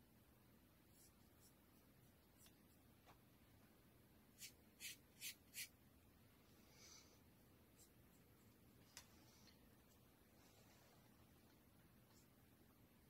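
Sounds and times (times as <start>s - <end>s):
brush scratching paint on board: 4.4s - 5.7s.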